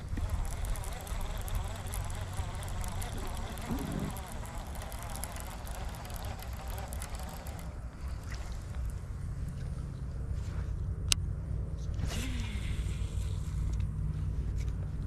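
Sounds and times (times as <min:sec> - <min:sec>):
wind buffeting microphone: 0:00.0 - 0:06.8
fishing reel ticking: 0:00.0 - 0:08.8, 0:12.1 - 0:13.9.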